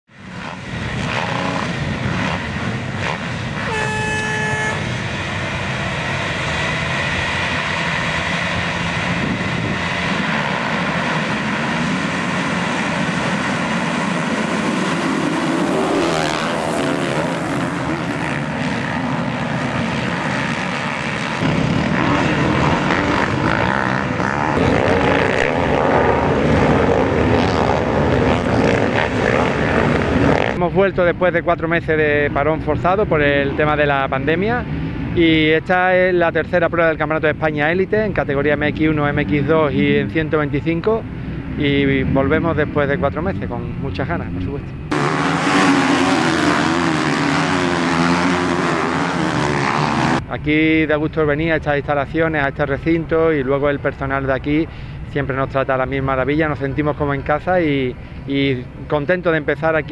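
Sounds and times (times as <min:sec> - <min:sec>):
motocross bike engines racing: 0:00.1 - 0:59.9
brief steady tone: 0:03.7 - 0:04.8.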